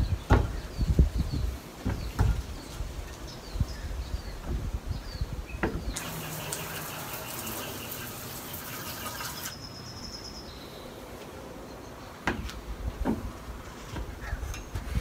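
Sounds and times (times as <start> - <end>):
hose nozzle spraying water: 5.9 - 9.6.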